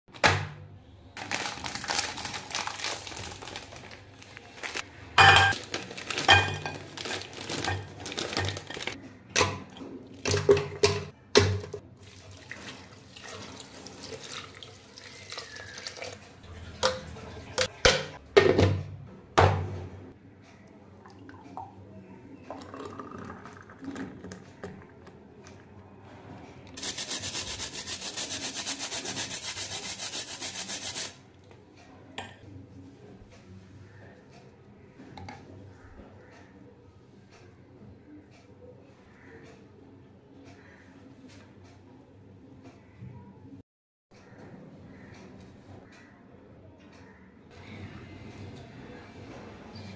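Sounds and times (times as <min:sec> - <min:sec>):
biscuit wrapper rustling: 0:01.2 - 0:09.0
ice dropping into plastic jar: 0:05.6 - 0:08.9.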